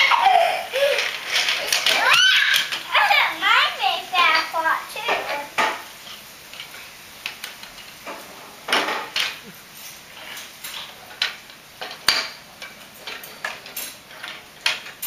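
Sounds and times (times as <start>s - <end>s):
plastic toy pieces clacking on wooden table: 0.9s - 2.9s, 10.7s - 15.0s.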